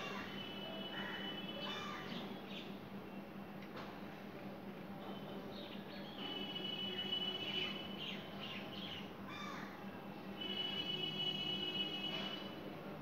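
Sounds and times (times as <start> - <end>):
crows calling: 1.0 - 2.2, 9.3 - 9.7.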